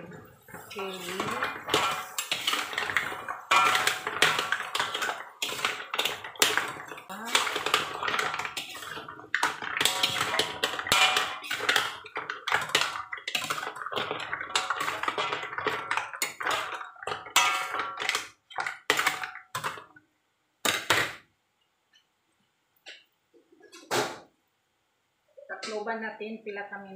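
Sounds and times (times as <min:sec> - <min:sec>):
ladle scraping a metal wok: 0:00.1 - 0:16.6.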